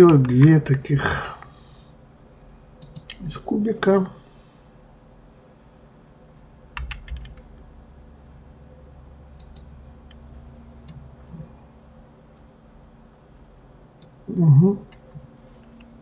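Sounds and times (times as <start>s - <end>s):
low steady hum: 0.0s - 16.0s
mouse clicks: 2.8s - 3.2s, 9.4s - 9.7s
keyboard key presses: 6.8s - 7.5s.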